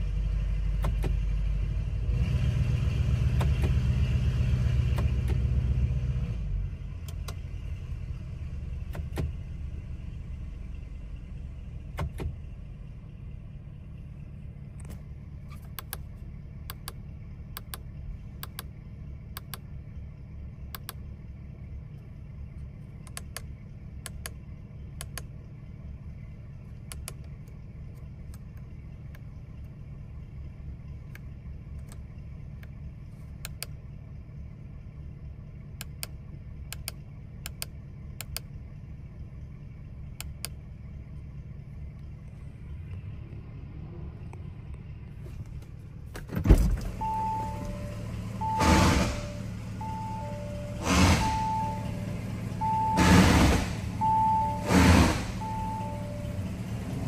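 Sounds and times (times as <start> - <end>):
car engine idling: 0.0 - 57.0
sharp clicks: 14.8 - 18.7, 19.3 - 19.7, 20.7 - 21.0, 23.0 - 24.4, 25.0 - 25.3, 26.8 - 27.4, 33.4 - 33.8, 35.8 - 38.5.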